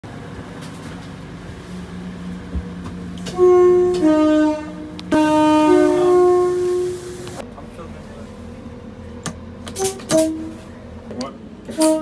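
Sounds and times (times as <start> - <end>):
two-tone train horn: 3.2 - 7.4, 9.8 - 10.7, 11.7 - 12.0.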